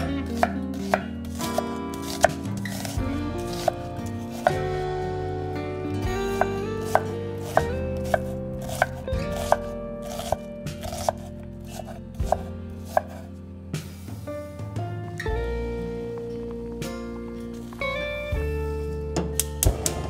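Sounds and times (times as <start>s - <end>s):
background music: 0.0s - 20.0s
knife chopping on cutting board: 0.4s - 4.6s, 6.8s - 13.2s.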